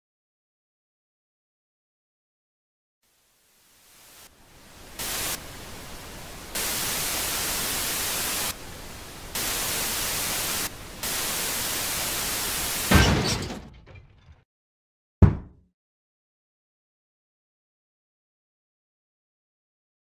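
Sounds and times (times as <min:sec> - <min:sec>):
television static hiss: 0:03.0 - 0:12.9.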